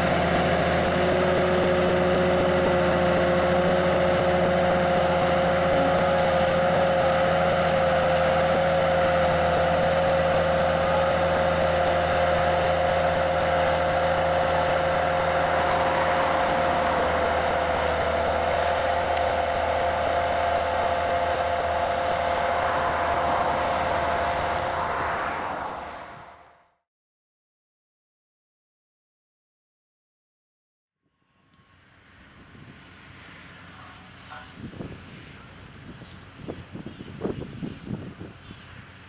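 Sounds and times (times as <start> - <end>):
tractor engine rumble: 0.0 - 26.6, 31.5 - 39.0
steady whining tones: 0.0 - 26.7.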